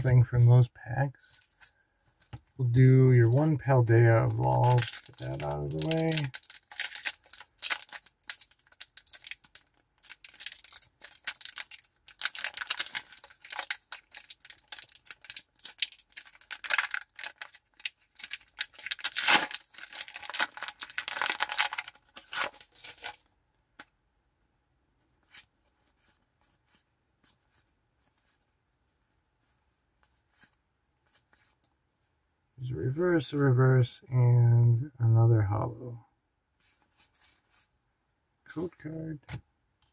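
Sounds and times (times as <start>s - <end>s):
foil wrapper crinkling and tearing: 4.3s - 23.2s.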